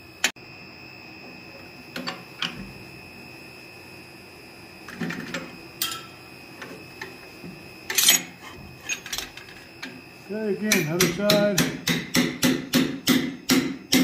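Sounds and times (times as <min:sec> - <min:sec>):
faint high whine: 0:00.0 - 0:12.0.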